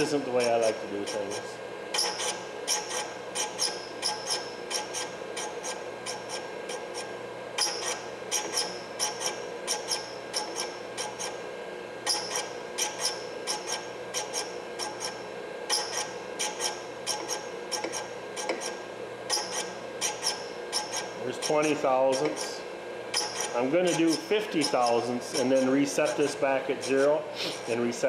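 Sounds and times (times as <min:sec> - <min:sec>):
sharp grinding strokes: 0:00.0 - 0:06.3, 0:19.3 - 0:27.8
grinding stone running: 0:23.2 - 0:28.0.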